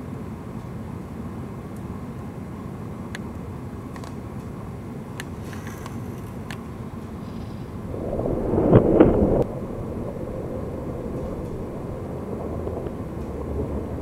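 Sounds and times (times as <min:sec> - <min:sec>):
low rumbling noise: 0:06.9 - 0:14.0.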